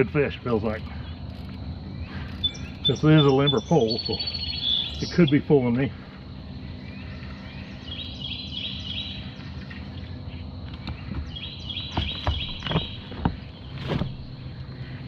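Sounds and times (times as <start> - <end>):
outdoor background noise: 0.0 - 15.0
songbird singing high notes: 2.0 - 5.6, 6.8 - 9.5.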